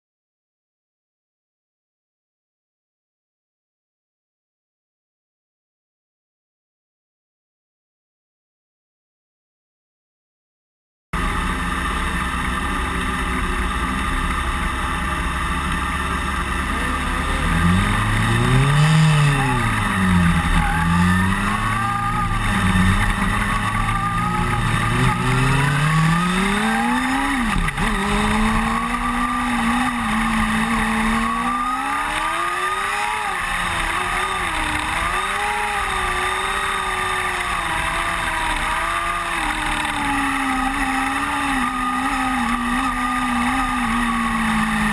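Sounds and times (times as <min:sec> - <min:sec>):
race car engine revving: 0:11.2 - 0:44.9.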